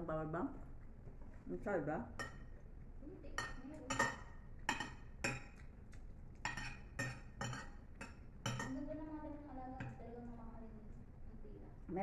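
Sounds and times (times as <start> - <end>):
cutlery clinking on plates: 3.4 - 5.7, 6.4 - 8.8.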